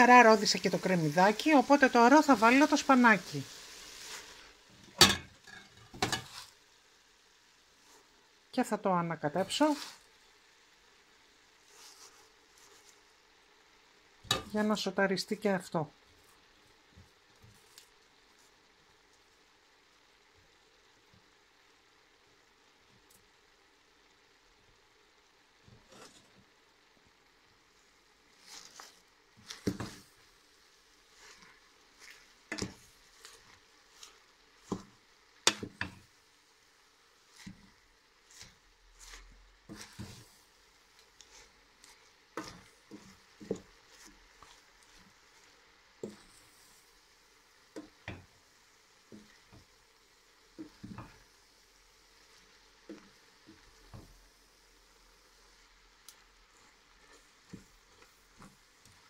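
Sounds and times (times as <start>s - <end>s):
faint sizzle: 0.0s - 59.0s
wooden spoon knocking on pot: 29.5s - 30.0s, 32.5s - 32.8s, 34.6s - 36.1s, 42.3s - 44.0s, 47.7s - 48.3s, 50.6s - 51.2s.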